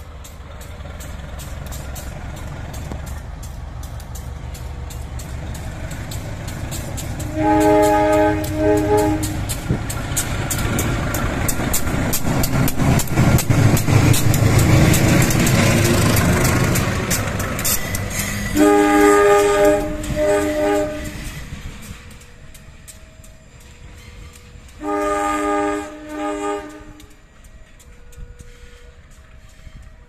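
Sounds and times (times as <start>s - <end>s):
locomotive engine rumble: 0.0s - 30.0s
locomotive chime horn: 7.2s - 9.7s, 18.4s - 21.3s, 24.6s - 30.0s.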